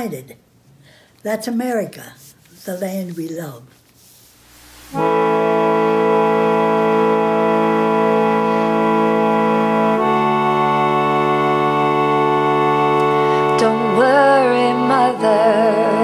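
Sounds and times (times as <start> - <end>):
held keyboard chords: 4.6 - 16.0
singing voice: 13.4 - 16.0.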